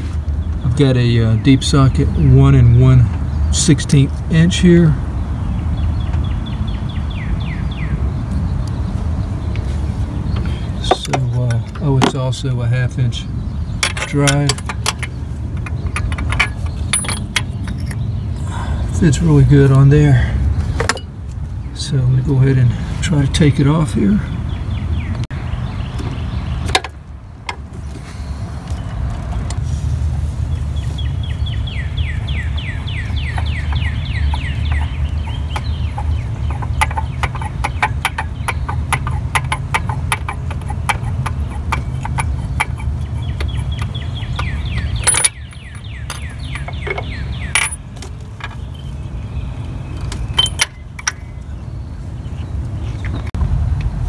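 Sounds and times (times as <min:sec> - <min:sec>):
low rumble: 0:53.2 - 0:54.0.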